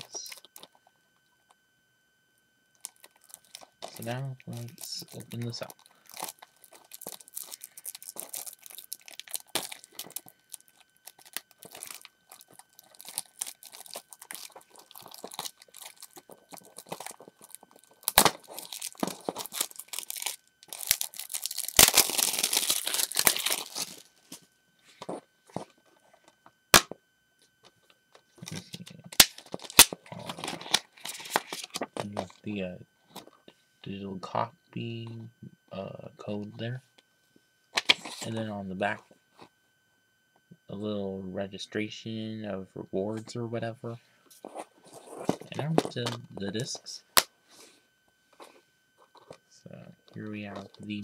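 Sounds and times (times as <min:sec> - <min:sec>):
plastic wrapping crinkling and tearing: 0:02.8 - 0:24.4, 0:28.4 - 0:32.3.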